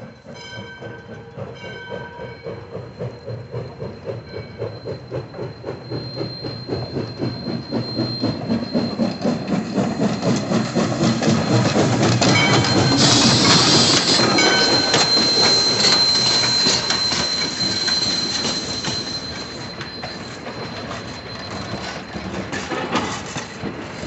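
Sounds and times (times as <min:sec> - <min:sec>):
steam locomotive exhaust chuffs: 0:00.0 - 0:24.0
steam locomotive whistle: 0:05.0 - 0:22.1.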